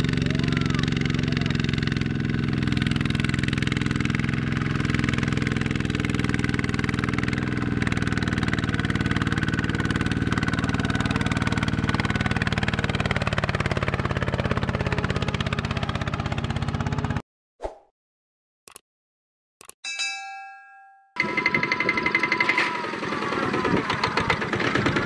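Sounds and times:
diesel tractor engine chugging: 0.0 - 17.2, 21.2 - 25.0.

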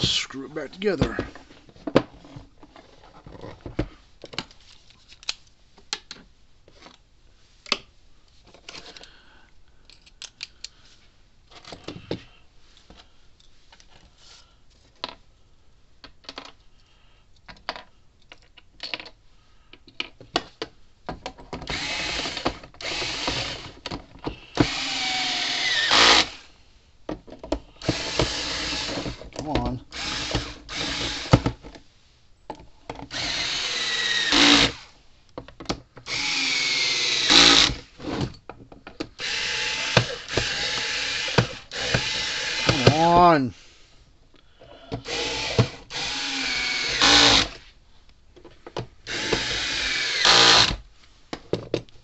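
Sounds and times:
cordless screwdriver whirring: 21.7 - 23.8, 24.6 - 26.4, 27.8 - 29.2, 30.0 - 31.5, 33.1 - 34.8, 36.1 - 37.8, 39.2 - 43.0, 45.0 - 47.6, 49.1 - 50.8.

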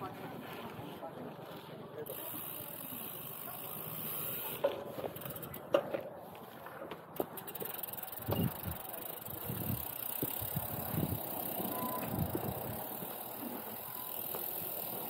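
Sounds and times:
bike bumping over paving: 3.8 - 15.0.

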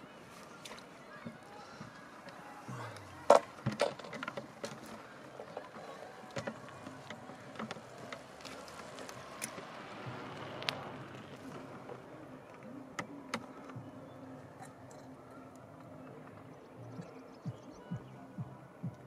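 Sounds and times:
low outdoor background: 0.0 - 19.0
landing net clicks and rustles: 3.3 - 13.8.

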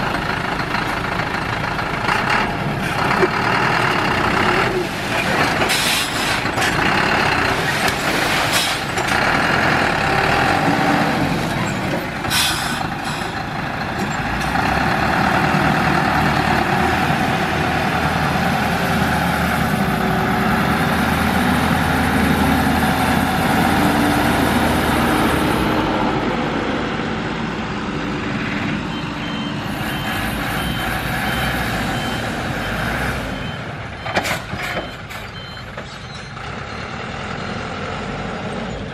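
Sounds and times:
diesel truck engine running: 0.0 - 38.9
reversing beeper: 28.9 - 36.9.

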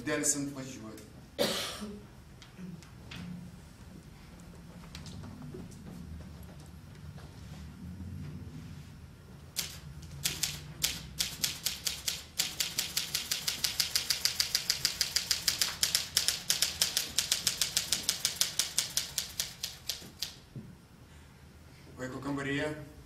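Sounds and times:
typewriter keys clacking: 9.6 - 20.4.

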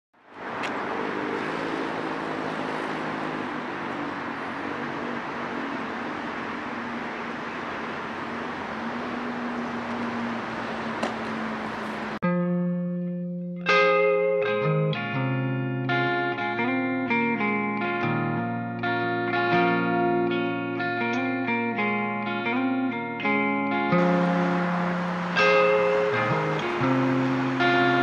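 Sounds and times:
guitar music: 12.2 - 28.0
outdoor background hiss: 24.0 - 28.0.

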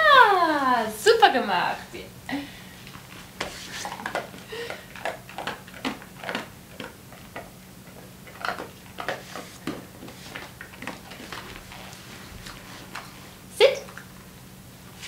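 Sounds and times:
dog chewing a treat: 3.8 - 13.2.

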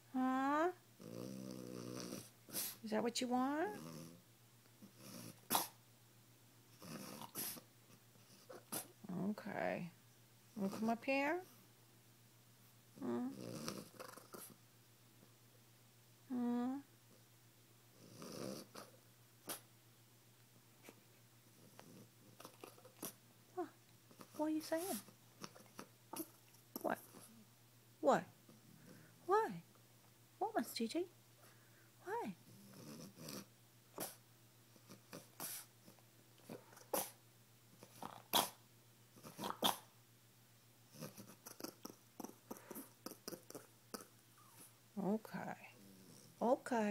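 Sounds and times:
dog breathy huff: 2.0 - 2.8, 6.9 - 7.7, 34.0 - 34.2, 35.1 - 35.7, 36.5 - 37.2
dog huffing: 2.0 - 2.8, 35.1 - 35.7
dog whining grumble: 6.8 - 7.6, 13.0 - 14.5, 18.0 - 19.6.

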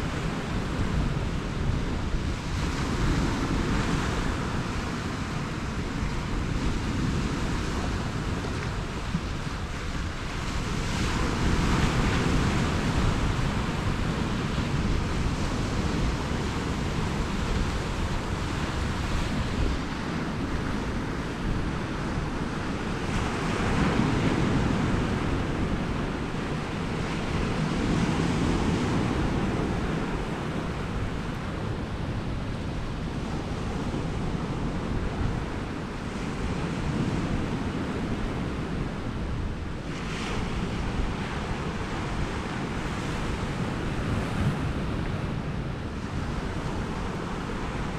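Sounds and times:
sea surf washing against rocks: 0.0 - 47.9
wind buffeting microphone: 0.0 - 47.9.

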